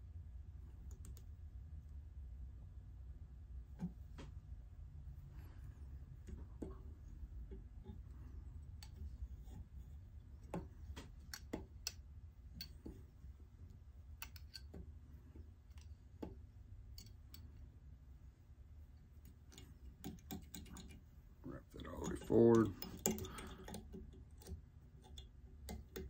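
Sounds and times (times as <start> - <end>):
low steady hum: 0.0 - 26.0
small tool clicks and taps: 14.2 - 14.8, 22.5 - 26.0.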